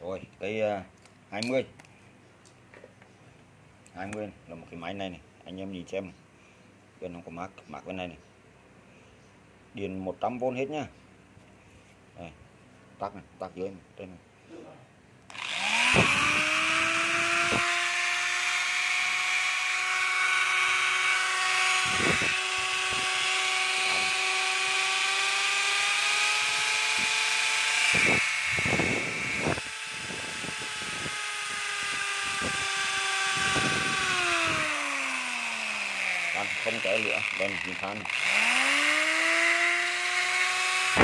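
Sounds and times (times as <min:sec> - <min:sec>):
power tool motor whining: 0:15.3 - 0:41.0.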